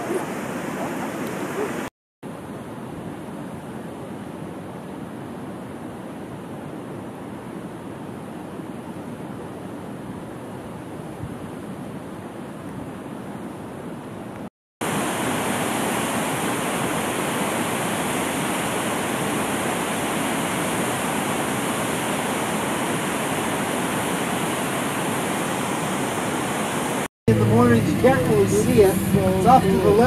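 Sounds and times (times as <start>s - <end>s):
waterfall rushing: 0.0s - 1.9s, 14.8s - 27.1s.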